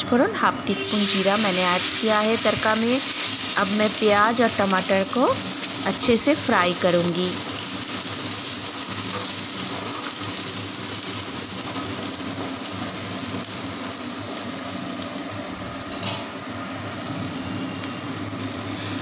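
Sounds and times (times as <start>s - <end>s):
onions sizzling in hot oil: 0.8s - 19.0s.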